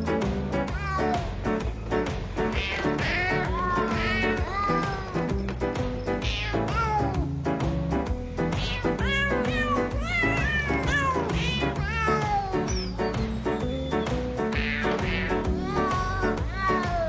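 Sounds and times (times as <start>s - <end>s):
music with steady beat: 0.0s - 17.0s
cat meowing: 0.7s - 1.4s, 2.5s - 5.3s, 6.1s - 7.2s, 8.5s - 12.8s, 14.5s - 17.0s.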